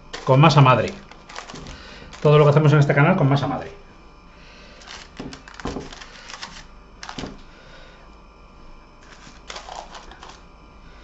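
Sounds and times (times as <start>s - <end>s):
paper rustling: 0.1s - 2.6s, 4.8s - 7.4s, 9.0s - 10.4s.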